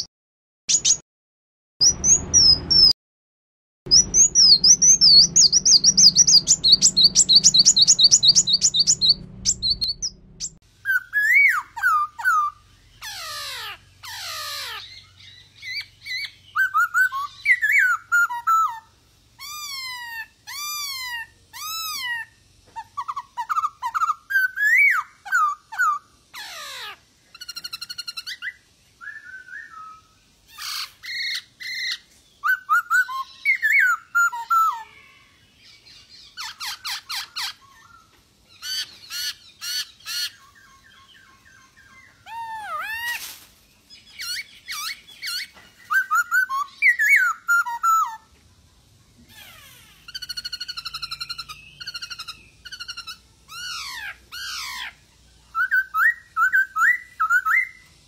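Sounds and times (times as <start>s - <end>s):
bird singing whistled song: 0.7s - 1.0s, 1.8s - 3.0s, 3.9s - 43.1s, 43.9s - 48.2s, 50.1s - 58.0s.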